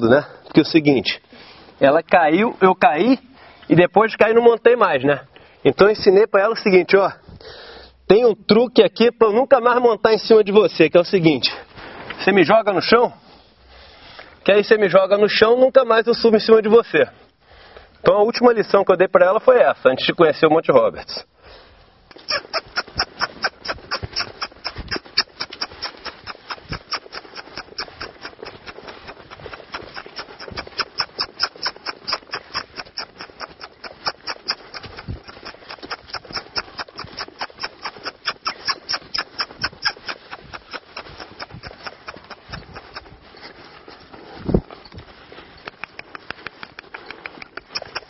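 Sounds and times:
horse hoof beats on sand: 0:22.2 - 0:48.0.

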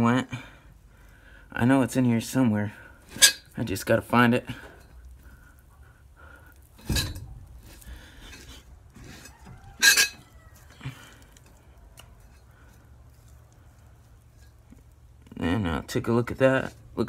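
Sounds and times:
sharp metallic clanks: 0:09.2 - 0:10.3.

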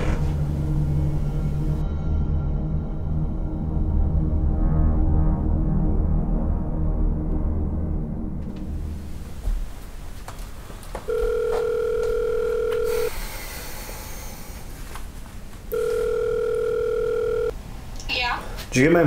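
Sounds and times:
phone ringback tone: 0:11.1 - 0:13.2, 0:15.7 - 0:17.6.

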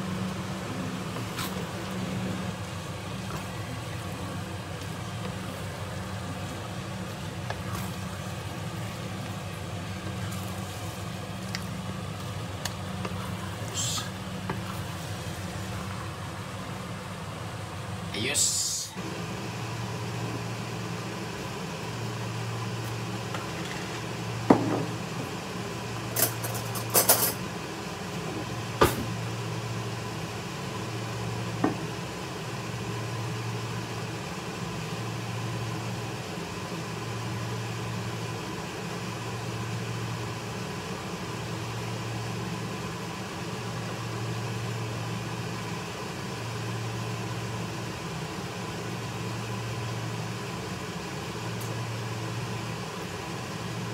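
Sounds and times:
low mechanical hum: 0:00.0 - 0:53.9
utensils clinking on dishes: 0:26.2 - 0:27.4.

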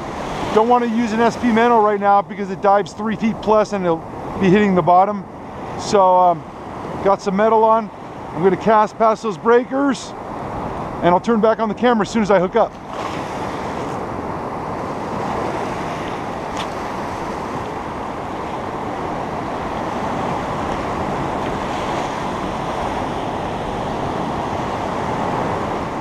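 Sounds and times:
ocean surf breaking: 0:00.0 - 0:26.0
wind buffeting microphone: 0:09.7 - 0:26.0.

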